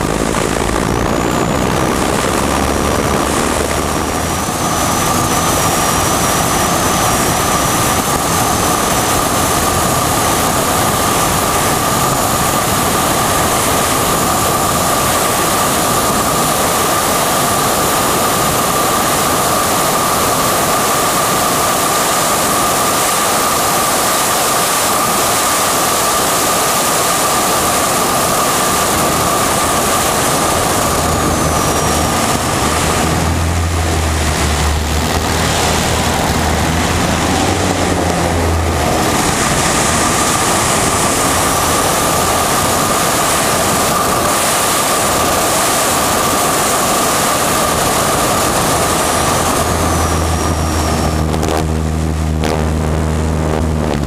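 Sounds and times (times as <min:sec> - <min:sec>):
propeller plane engine drone: 0:00.0 - 0:54.0
steady whine: 0:00.0 - 0:54.0
wind rush: 0:00.0 - 0:54.0.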